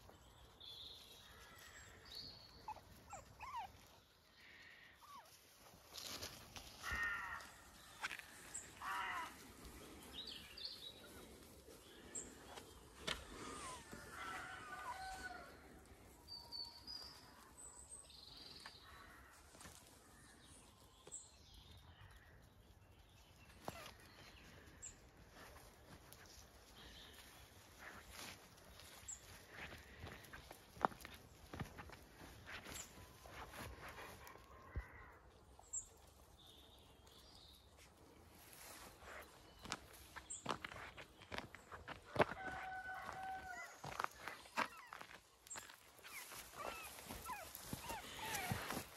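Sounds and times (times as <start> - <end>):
puppy whimpering: 2.6 - 3.9, 46.1 - 48.9
puppy squeaking: 2.7 - 3.7.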